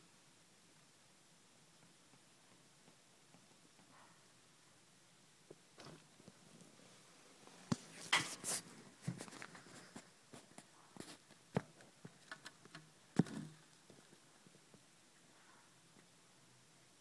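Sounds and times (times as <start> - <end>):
soft rustling: 5.5 - 15.7.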